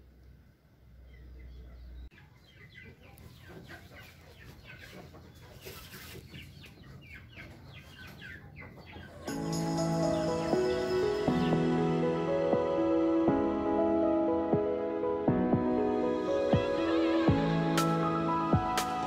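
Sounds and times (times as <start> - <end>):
birds chirping: 0.8 - 11.7
music: 9.2 - 19.0.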